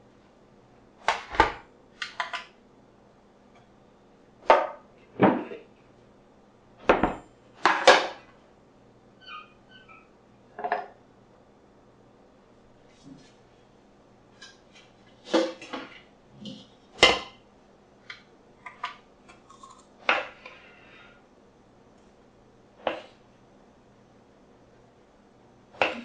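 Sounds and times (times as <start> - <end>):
objects knocking on counter: 6.9 - 8.2.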